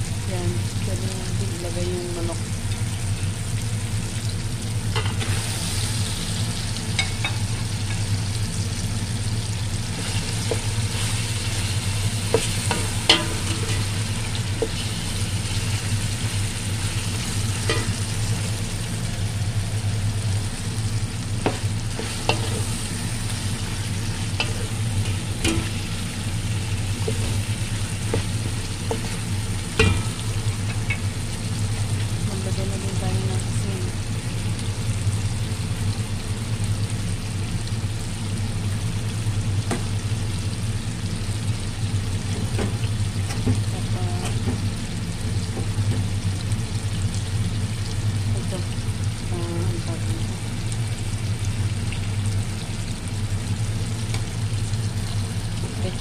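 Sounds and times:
food frying sizzle: 0.0s - 56.0s.

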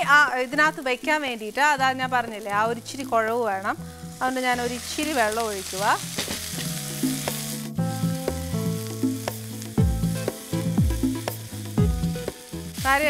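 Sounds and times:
food sizzling in a pan: 0.0s - 13.0s
music with deep bass: 6.6s - 13.0s.

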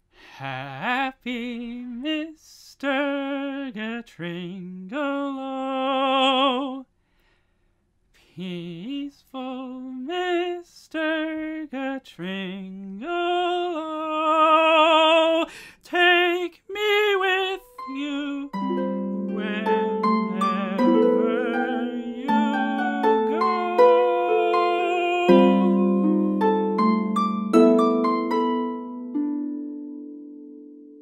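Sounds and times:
tenor voice singing with vibrato: 8.4s - 26.8s
plucked harp notes: 18.5s - 31.0s.

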